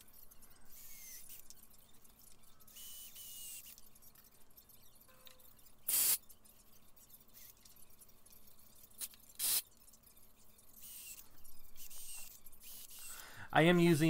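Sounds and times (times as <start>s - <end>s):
drill driving screws into wood: 2.8s - 3.8s, 5.9s - 6.2s, 9.0s - 9.6s, 10.8s - 13.2s.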